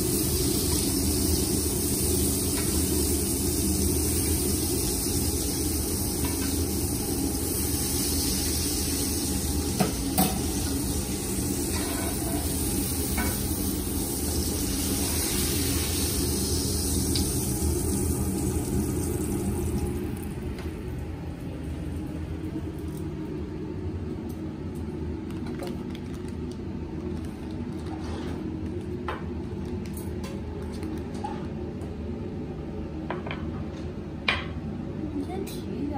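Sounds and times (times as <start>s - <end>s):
steak sizzling in a skillet: 0.0s - 20.2s.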